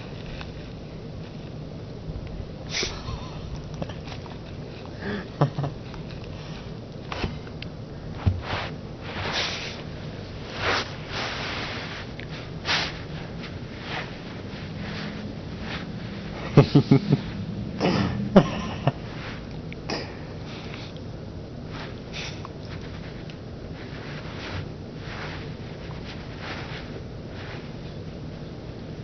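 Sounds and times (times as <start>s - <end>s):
dog sniffing and snorting: 8.4s - 18.3s, 19.1s - 21.0s, 21.7s - 23.2s.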